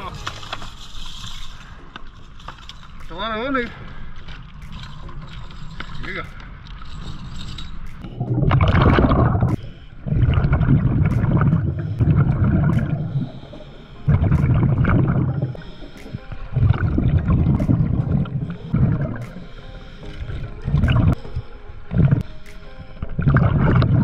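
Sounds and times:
underwater exhaled air bubbling: 8.0 - 21.2, 21.9 - 22.2, 23.0 - 24.0.

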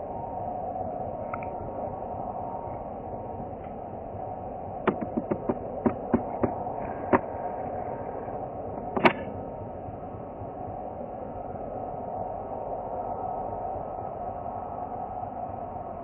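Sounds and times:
distant jet engines whining: 0.0 - 16.0
sharp clicks: 4.9 - 6.5.

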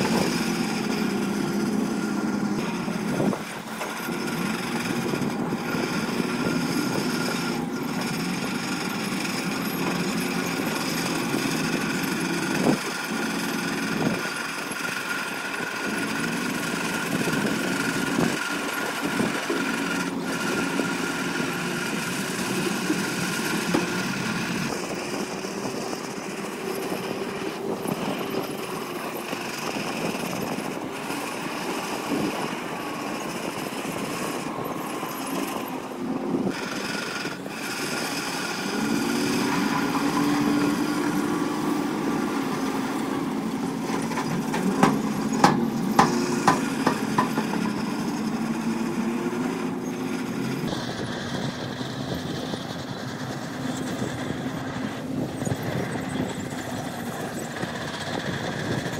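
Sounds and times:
diesel engine of heavy machinery: 0.0 - 58.9
sharp knocks: 44.1 - 47.8.

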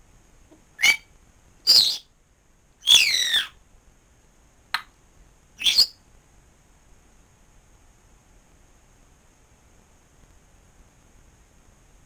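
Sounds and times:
parrot whistled calls: 0.8 - 2.1, 2.8 - 3.6, 5.6 - 6.0.

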